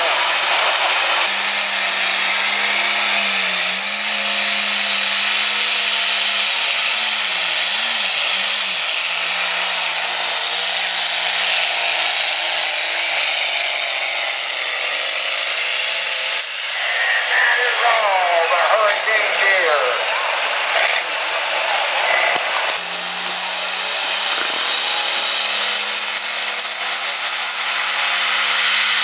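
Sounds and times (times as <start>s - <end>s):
diesel engine under heavy load: 0.0s - 29.0s
rising turbo whistle: 1.3s - 6.1s, 22.8s - 29.0s.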